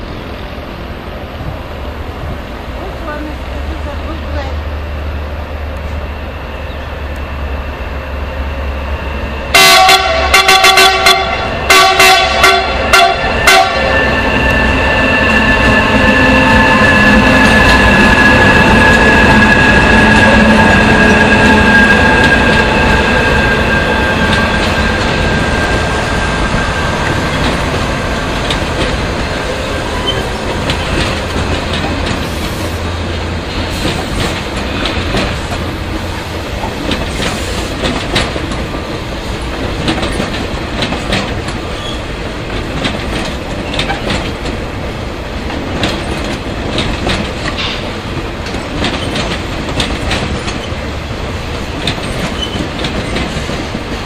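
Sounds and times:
electric locomotive whine: 0.0s - 54.0s
train wheels rumbling on rails: 0.0s - 54.0s
wheels clicking over rail joints: 24.2s - 54.0s.

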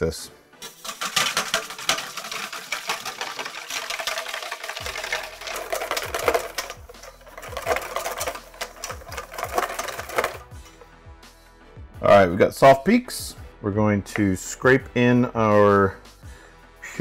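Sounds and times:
whisk clattering in a metal bowl: 0.6s - 10.8s.

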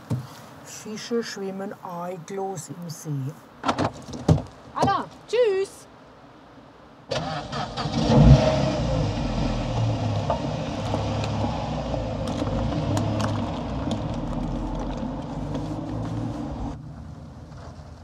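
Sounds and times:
car engine rumbling: 7.1s - 18.0s.

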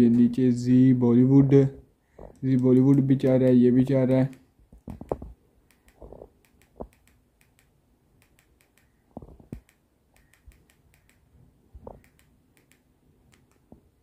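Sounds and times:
remote control button clicks: 4.2s - 11.3s.

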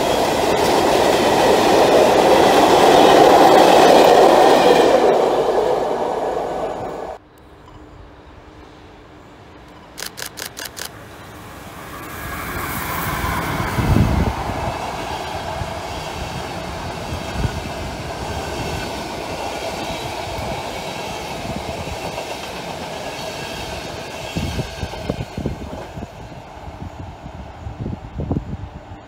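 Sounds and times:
electric locomotive passing: 0.0s - 29.0s.

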